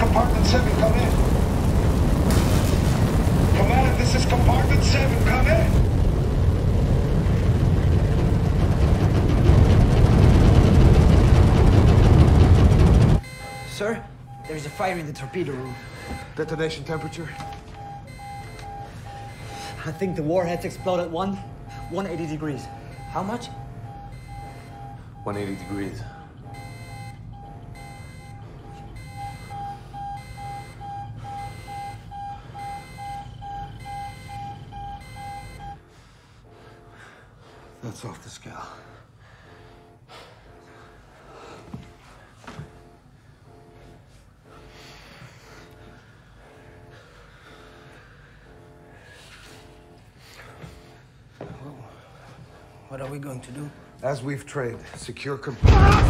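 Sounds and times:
low rumble: 0.0 - 13.4
rumble of flames crackling: 0.0 - 35.8
rapid electronic alarm beeping: 3.2 - 42.1, 42.7 - 51.0.

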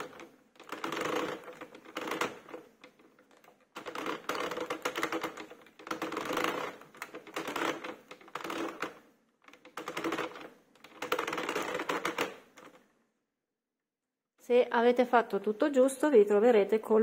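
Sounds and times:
knitting machine needles clicking: 0.0 - 12.9.

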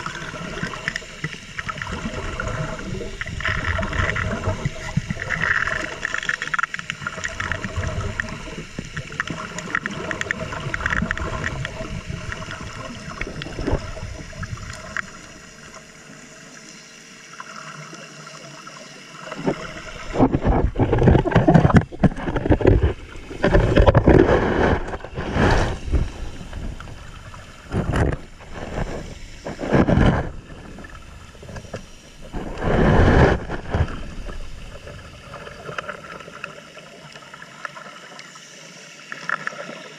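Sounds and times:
underwater water wash: 0.0 - 39.9
bubbling air bursts: 19.3 - 35.6.

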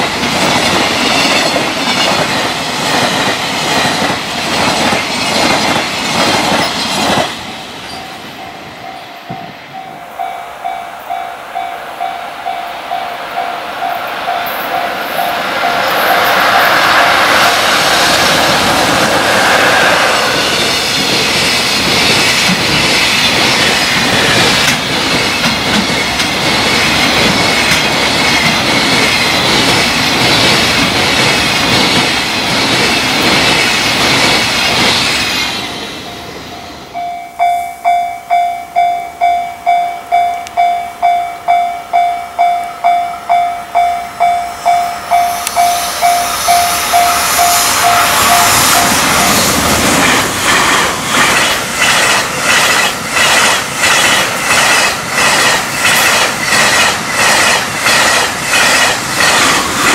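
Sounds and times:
freight train rushing past: 0.0 - 59.9
wheels clacking over rail joints: 14.1 - 35.4, 46.5 - 59.9
level crossing bell dinging: 36.6 - 49.0.

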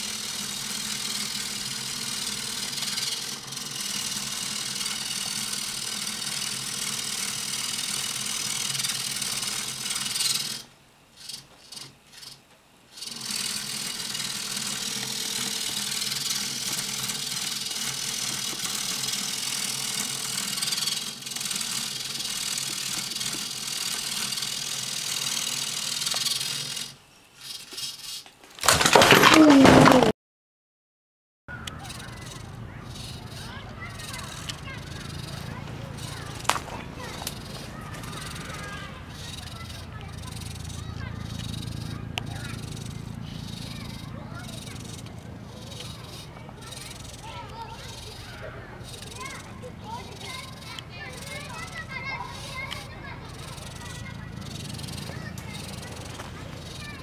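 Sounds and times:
servo motors buzzing and whirring: 0.0 - 28.4, 31.5 - 57.0
light rattle: 31.6 - 57.0.

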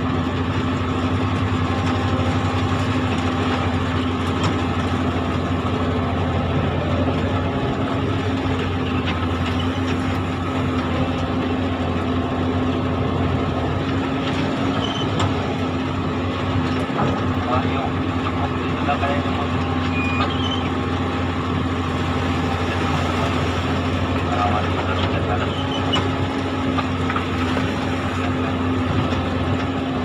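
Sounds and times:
excavator diesel engine humming: 0.0 - 30.0.

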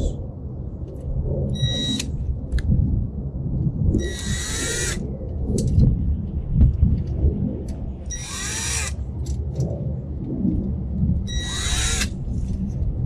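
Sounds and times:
low rumble: 0.0 - 13.0
cordless drill whining: 4.0 - 5.0, 8.1 - 9.0, 11.3 - 12.1.

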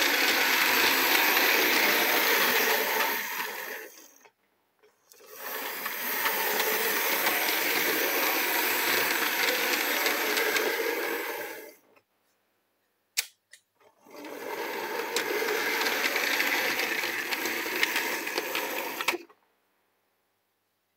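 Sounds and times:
model locomotive motor whirring: 0.0 - 4.3, 5.1 - 11.8, 14.1 - 19.3
sharp click: 13.2 - 13.7.

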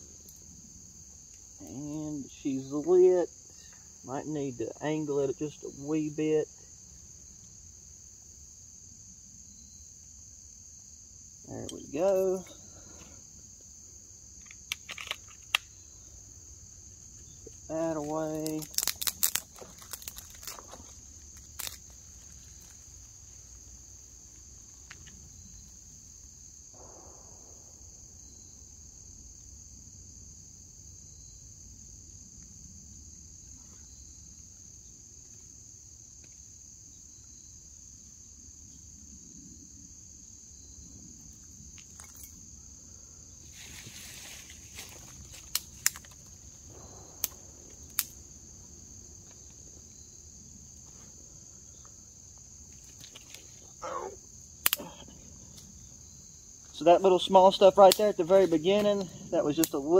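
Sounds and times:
insects chirring: 0.0 - 59.9
rustle: 0.0 - 59.9
sharp snaps: 14.4 - 15.8, 18.0 - 20.6, 45.5 - 48.3, 54.6 - 55.7, 57.9 - 59.0.

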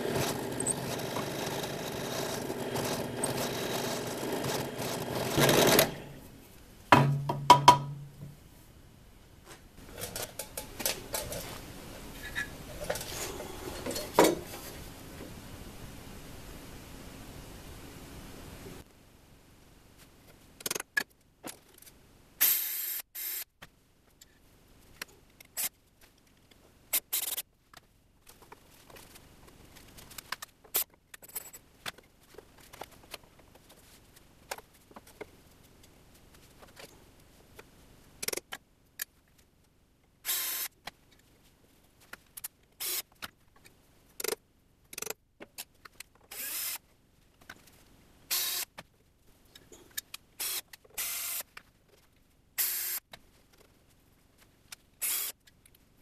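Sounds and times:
cordless drill running: 0.0 - 6.2, 46.3 - 46.8.

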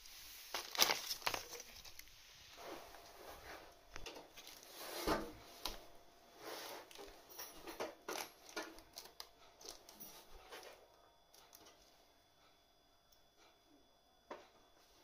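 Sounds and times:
plumbing parts clicking and knocking: 7.0 - 10.8.

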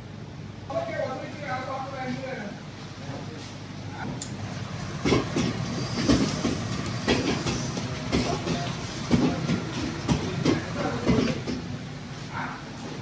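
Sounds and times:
machine knocking: 4.9 - 11.8.

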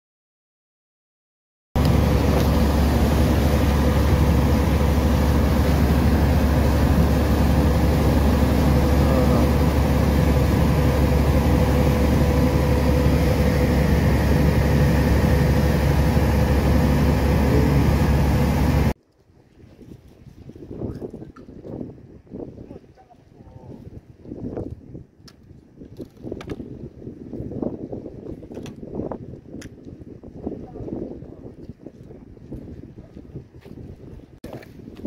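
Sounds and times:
boat engine rumbling: 1.8 - 19.0.

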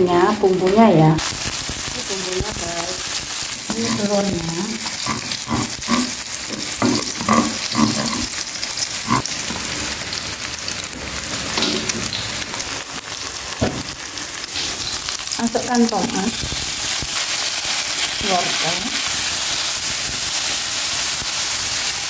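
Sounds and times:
eggs sizzling in oil: 0.0 - 22.0
spatula knocking on pan: 5.2 - 8.3.

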